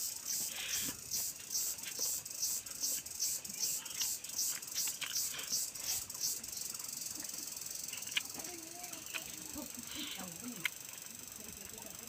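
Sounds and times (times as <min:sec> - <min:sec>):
chewing and lip smacks: 0:03.8 - 0:06.0, 0:07.9 - 0:08.4.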